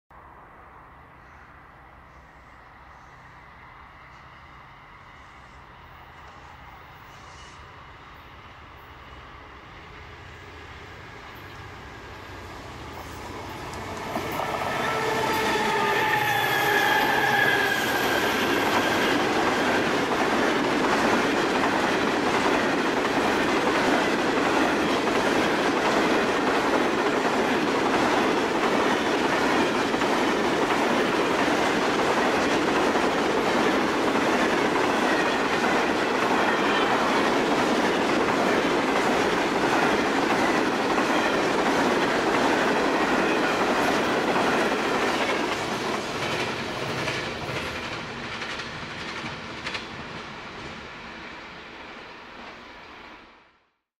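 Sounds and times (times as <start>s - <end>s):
diesel locomotives passing: 0.2s - 53.5s
wheel-on-rail noise: 11.3s - 50.9s.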